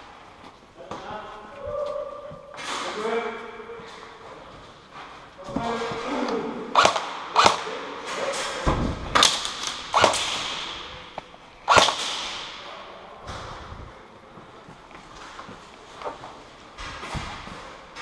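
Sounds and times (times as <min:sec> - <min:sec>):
airsoft gun shots echoing: 0:06.7 - 0:12.8.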